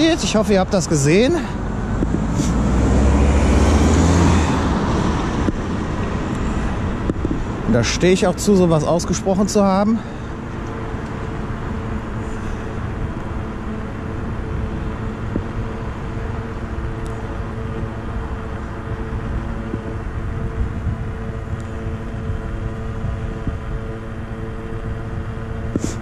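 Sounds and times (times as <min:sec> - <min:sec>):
road rumble: 0:00.0 - 0:26.0
wind noise: 0:01.8 - 0:07.8, 0:10.4 - 0:26.0
electric motor hum: 0:10.0 - 0:26.0.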